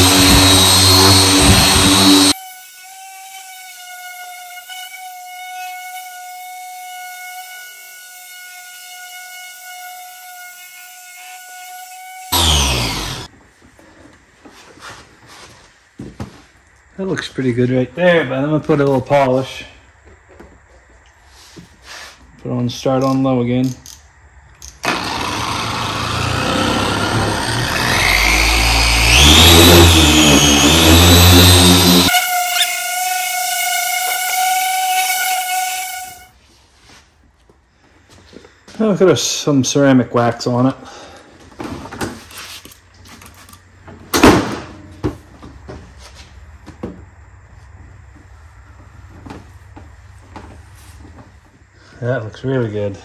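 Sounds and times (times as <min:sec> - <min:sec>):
electric polisher whining: 0:00.0 - 0:03.6, 0:11.2 - 0:13.3, 0:24.8 - 0:36.3
low hum: 0:24.8 - 0:32.1.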